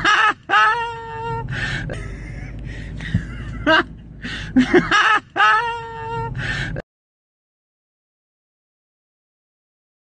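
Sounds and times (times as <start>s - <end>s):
low rumble of street noise: 0.0s - 6.8s.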